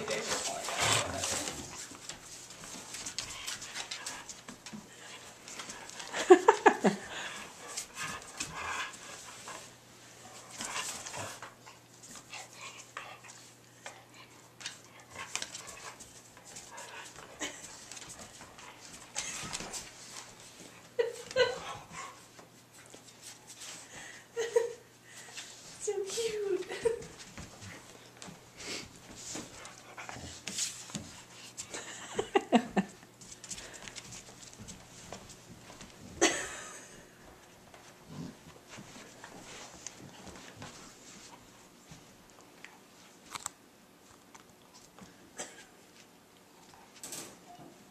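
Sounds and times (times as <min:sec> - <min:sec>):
dogs panting: 0:00.0 - 0:22.3.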